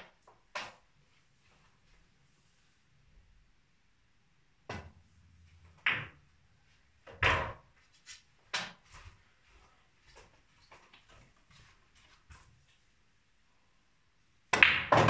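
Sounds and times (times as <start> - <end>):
snooker balls clacking: 5.8 - 6.2, 14.5 - 15.0.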